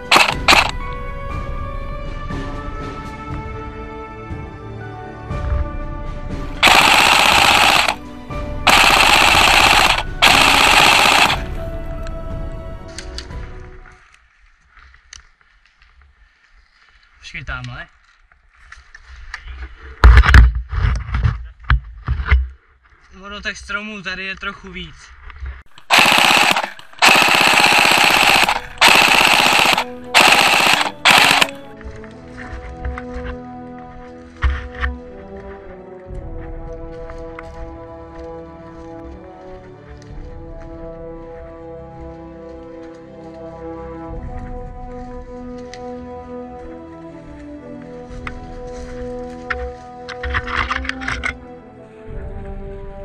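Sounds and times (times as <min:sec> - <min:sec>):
rapid automatic gunfire: 0:00.0 - 0:00.7, 0:06.6 - 0:08.0, 0:08.7 - 0:11.5, 0:25.8 - 0:31.7
background music: 0:00.0 - 0:14.2, 0:25.8 - 0:53.0
gearbox whine: 0:25.7 - 0:31.7.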